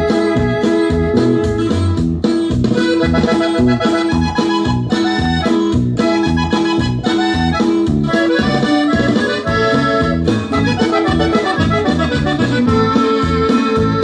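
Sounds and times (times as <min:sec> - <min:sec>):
accordion melody: 0:00.0 - 0:14.0
pulsing bass and rhythm: 0:00.0 - 0:14.0.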